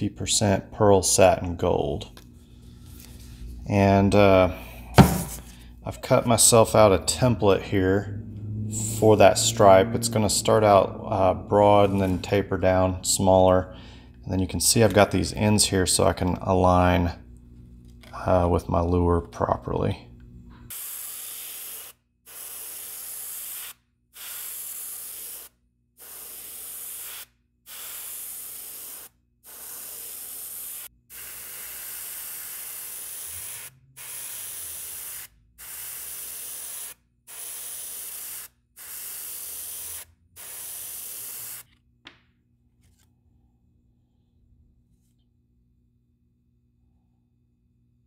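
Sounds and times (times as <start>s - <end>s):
airbrush spraying hiss: 20.7s - 41.7s.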